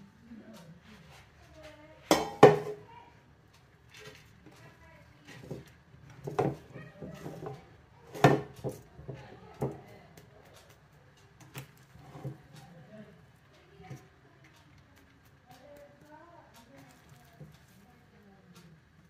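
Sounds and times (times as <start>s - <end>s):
steamer basket clunking on pot: 2.1s - 2.9s, 6.2s - 8.8s.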